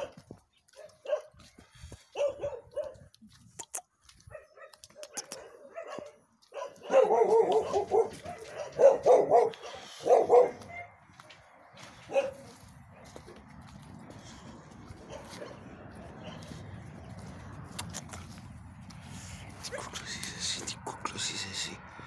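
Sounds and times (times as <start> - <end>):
dogs barking: 0.0 - 3.2, 4.2 - 18.4.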